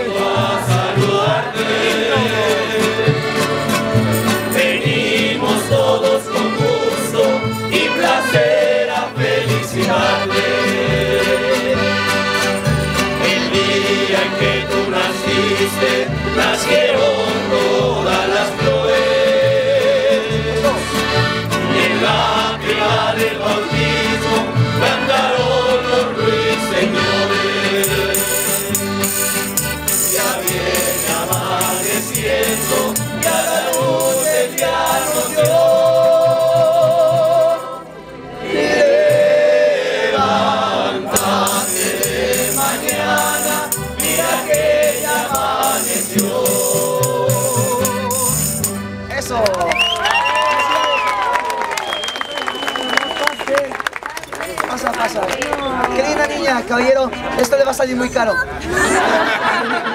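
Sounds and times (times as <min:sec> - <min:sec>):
choir singing: 0:00.0 - 0:12.3, 0:13.1 - 0:48.4
strummed guitars: 0:00.0 - 0:49.5
double bass: 0:00.0 - 0:50.3
accordion: 0:00.0 - 0:59.9
tambourine jingling: 0:03.5 - 0:05.0, 0:10.8 - 0:13.5, 0:27.8 - 0:37.8, 0:41.1 - 0:49.0.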